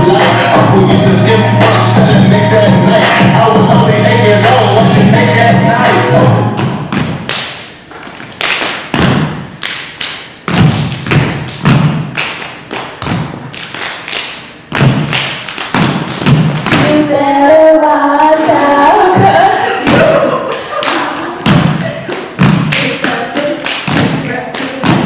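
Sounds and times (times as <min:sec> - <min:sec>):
stomps on stage floor: 0:08.9 - 0:09.5, 0:10.5 - 0:12.1, 0:14.7 - 0:16.9, 0:21.4 - 0:21.8, 0:22.4 - 0:22.9
hands clapping: 0:22.1 - 0:24.8.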